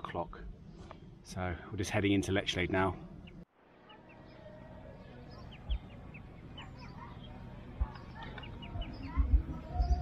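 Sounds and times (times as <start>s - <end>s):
cygnets peeping: 3.2s - 10.0s.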